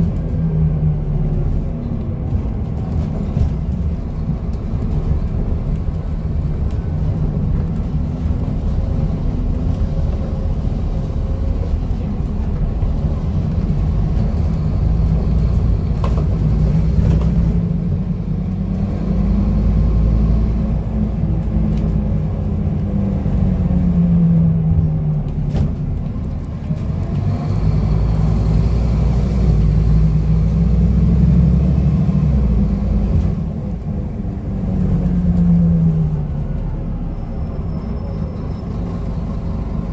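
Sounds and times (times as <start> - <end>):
bus diesel engine: 0.0 - 39.9
road rumble: 0.0 - 39.9.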